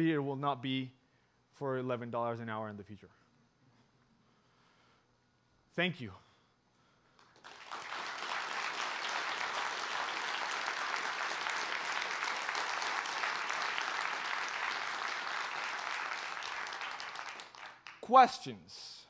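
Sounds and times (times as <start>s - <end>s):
audience applauding: 7.2s - 18.1s.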